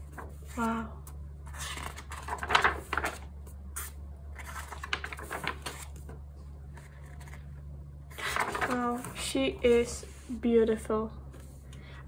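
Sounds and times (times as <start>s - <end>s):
paper rustling and crackling: 1.5s - 9.9s.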